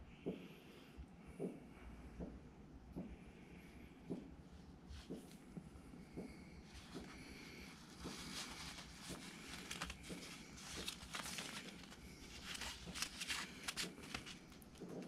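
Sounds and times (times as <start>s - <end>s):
plastic sheeting crinkling: 6.7s - 15.0s.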